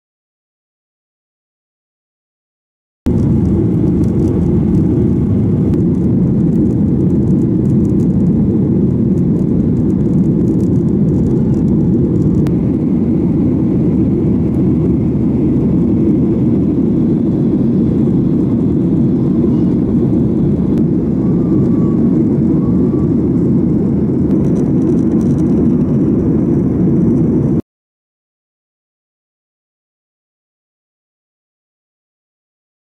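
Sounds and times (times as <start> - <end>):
airliner cabin low rumble: 3.1 - 27.6.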